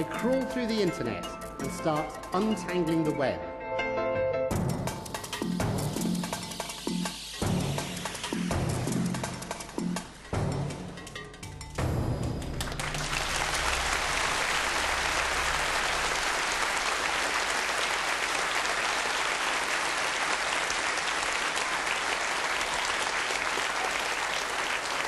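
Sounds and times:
audience clapping: 12.3s - 25.0s.

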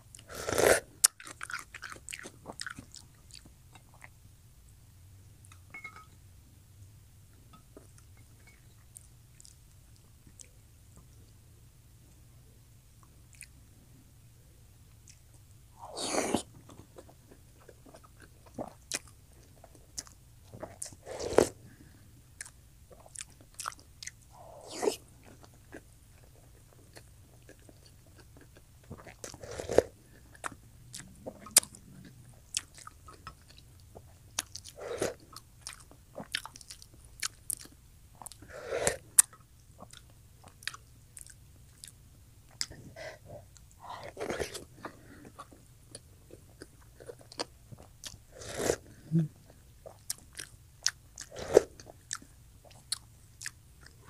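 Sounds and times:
wet chewing with smacking: 1.0s - 4.2s, 22.4s - 38.4s.

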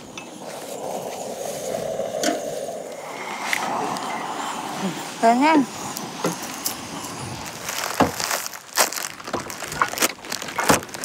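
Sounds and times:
plastic packet crinkling: 7.4s - 11.0s.

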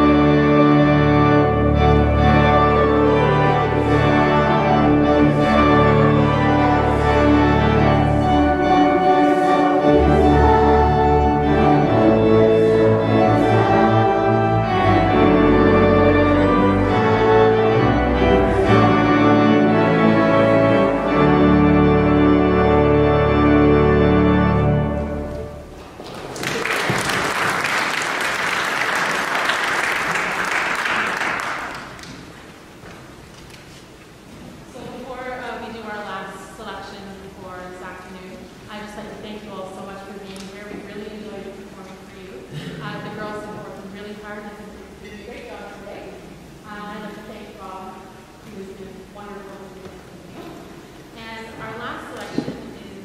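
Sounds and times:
pipe organ: 0.0s - 26.0s
piano accompaniment: 0.0s - 26.1s
girls' choir singing: 2.8s - 20.0s
audience applause: 25.8s - 32.4s.

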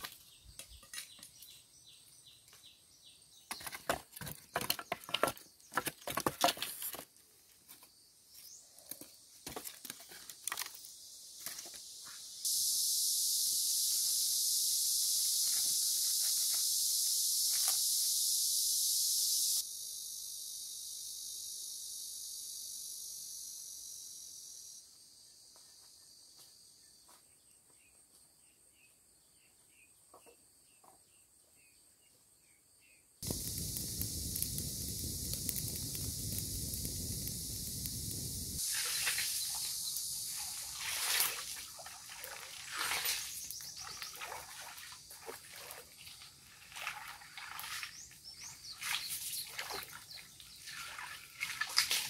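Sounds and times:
steady high hiss: 10.5s - 24.8s, 33.2s - 45.1s
faint chirps: 10.9s - 41.6s, 42.2s - 45.3s, 47.6s - 51.1s
running water rushing: 33.3s - 48.0s.

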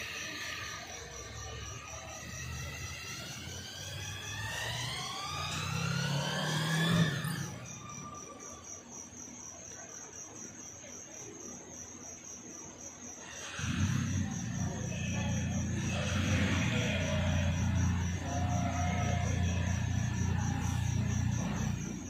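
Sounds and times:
vehicle whine rising in pitch: 1.2s - 8.6s, 13.5s - 22.0s.

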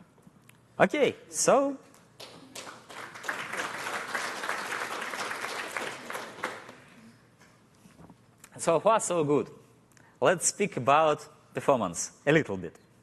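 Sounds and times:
audience applauding: 2.2s - 6.9s.

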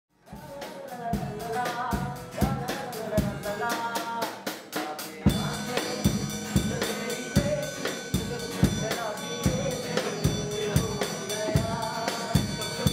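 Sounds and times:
acoustic guitar: 0.1s - 12.9s
drum kit beat: 0.2s - 12.9s
cymbals ringing: 5.3s - 12.9s.

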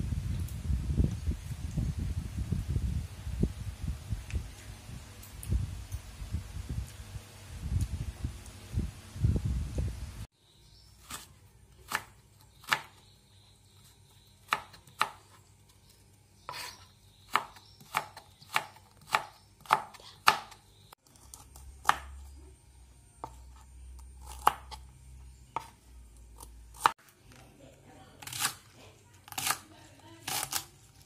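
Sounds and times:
knife chopping on plastic board: 11.9s - 13.0s, 14.5s - 15.4s, 16.5s - 20.6s, 21.3s - 22.1s, 23.2s - 23.6s, 24.2s - 24.8s, 25.6s - 25.8s.

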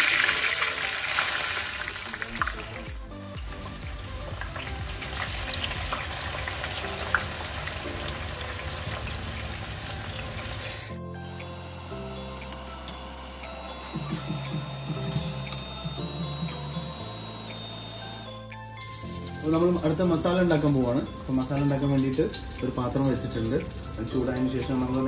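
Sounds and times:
onions sizzling in frying pan: 0.0s - 2.7s, 3.6s - 10.9s, 18.7s - 25.0s.

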